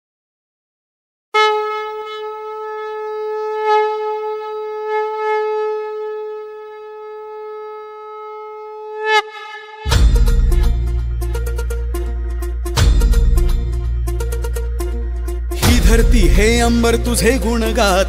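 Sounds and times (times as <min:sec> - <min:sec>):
conch shell blown: 0:01.4 - 0:12.5.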